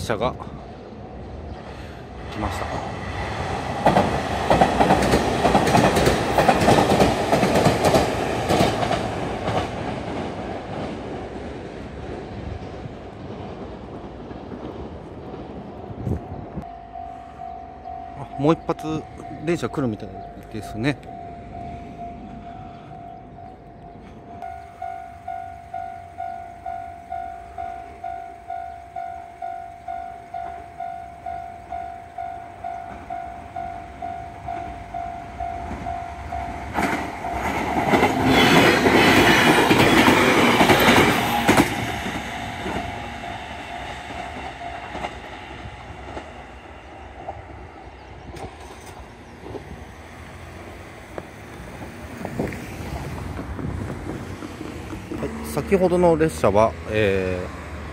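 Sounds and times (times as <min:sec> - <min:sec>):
electric train passing: 0:00.0 - 0:57.9
level-crossing warning bell: 0:16.6 - 0:47.8.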